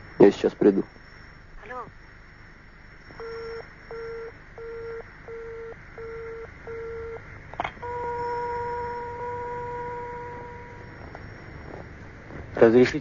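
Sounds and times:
telephone busy tone beeps: 3.1s - 7.2s, 7.8s - 11.6s.

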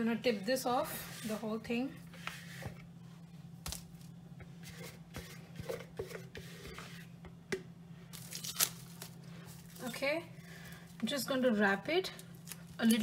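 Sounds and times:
spatula scraping a bowl: 1.0s - 1.5s, 4.6s - 7.1s
plastic wrap rustling: 8.1s - 11.0s
plastic wrap crinkle: 8.2s - 10.0s.

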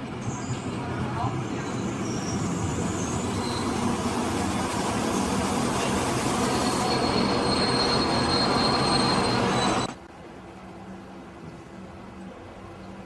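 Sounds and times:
train engine and wheels rumbling: 0.0s - 13.0s
high wheel squeal: 1.4s - 10.0s.

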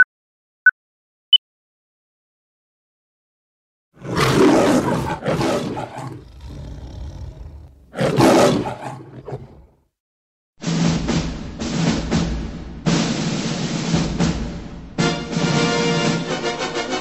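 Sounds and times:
loud animal roars: 4.0s - 9.8s.

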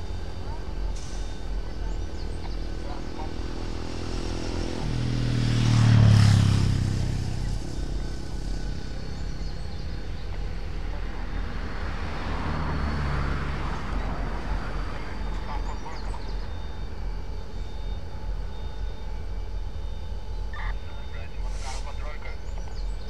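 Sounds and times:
vehicle passing by: 0.0s - 17.9s
low engine hum: 0.0s - 23.0s.

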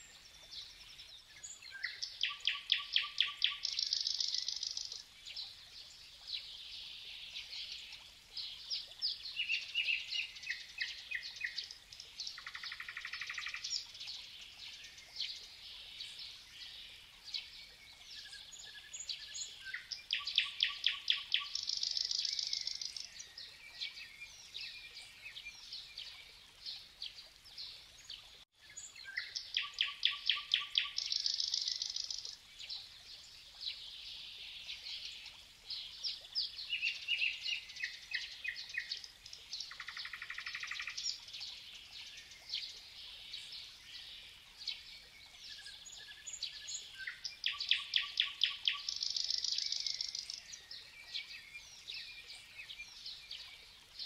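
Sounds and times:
bird trilled song: 0.0s - 5.5s, 16.6s - 26.3s, 28.7s - 32.8s, 34.6s - 54.0s
faint outdoor background noise: 0.0s - 54.0s
songbirds singing: 0.0s - 54.0s.

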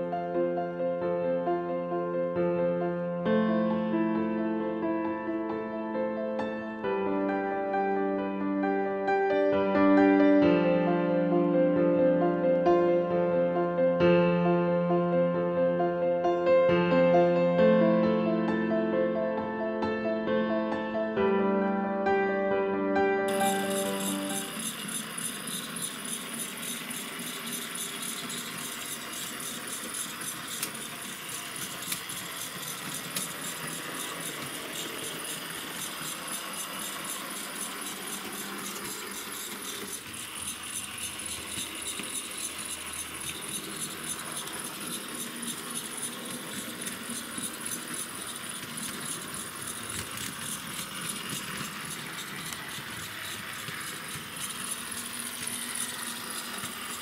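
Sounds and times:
small model motors: 23.3s - 57.0s
small wheels clattering on rails: 23.3s - 57.0s.

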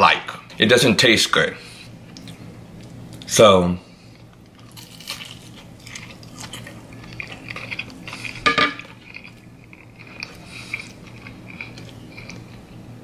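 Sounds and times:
low steady hum: 0.0s - 13.0s
chewing food: 4.2s - 12.8s.

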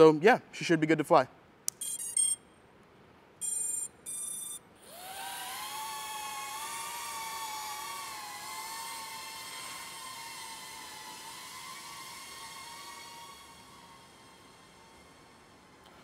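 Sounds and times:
short electronic beeps: 1.7s - 2.5s, 3.4s - 4.7s
drone propellers whirring: 4.1s - 15.7s.

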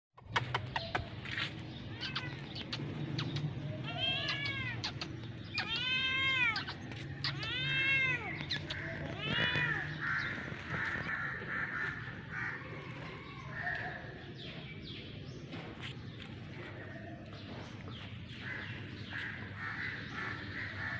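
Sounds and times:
cat meowing: 3.8s - 10.1s.

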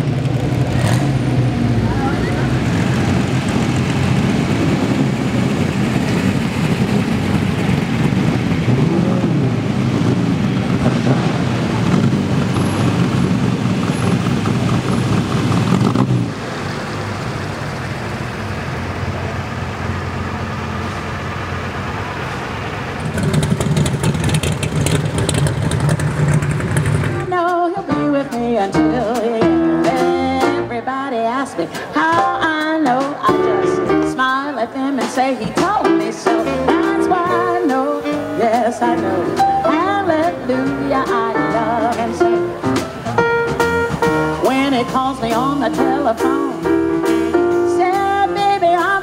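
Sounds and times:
engine crackles: 0.0s - 49.0s
race car engines passing: 0.0s - 49.0s
live band playing: 24.7s - 49.0s.

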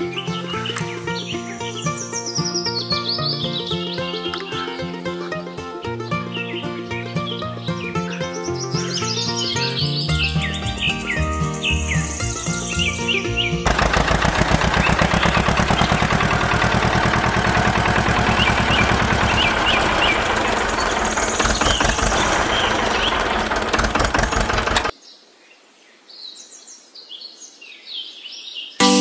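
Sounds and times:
birds chirping: 0.0s - 25.2s
tractor engine knocking: 13.6s - 24.9s.

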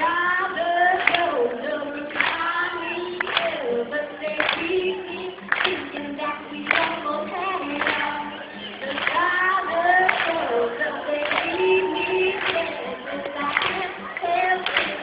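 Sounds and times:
voices singing over music: 0.0s - 15.0s.

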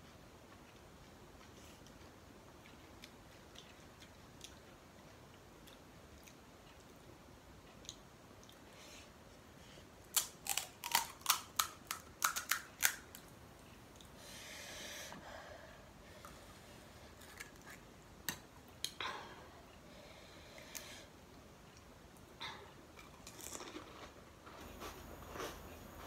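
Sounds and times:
fried shells crunching: 10.1s - 13.2s, 23.0s - 24.2s.

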